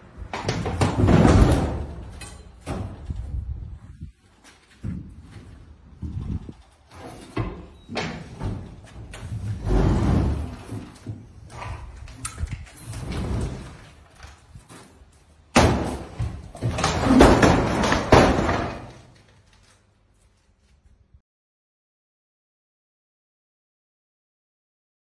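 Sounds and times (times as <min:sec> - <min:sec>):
metal clanking and knocking: 0:15.5 - 0:19.1.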